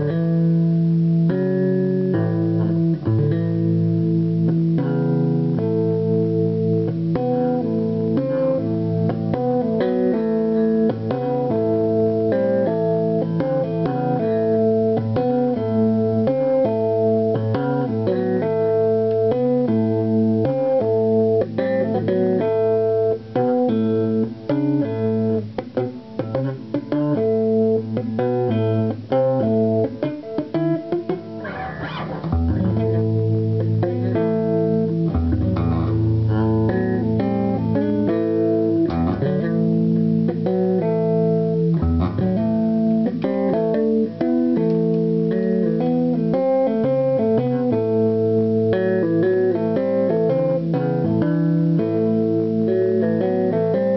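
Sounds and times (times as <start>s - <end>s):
electric bass guitar playing: 0.0s - 53.9s.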